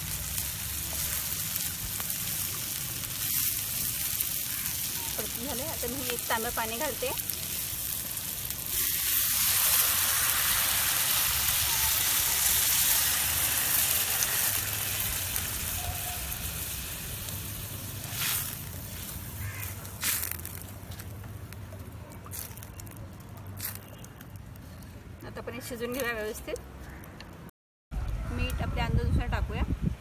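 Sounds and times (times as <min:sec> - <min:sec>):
water sizzling in hot oil: 0:00.0 - 0:20.7.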